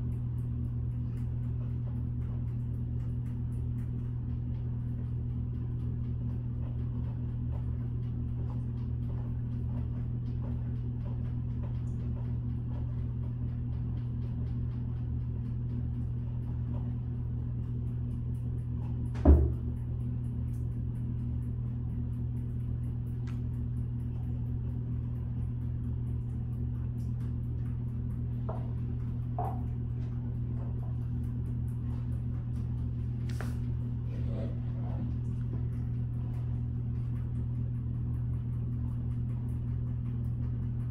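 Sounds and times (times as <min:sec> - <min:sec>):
low electrical hum: 0:00.0 - 0:40.9
high heels knocking on tile floor: 0:19.1 - 0:19.7, 0:28.5 - 0:29.8.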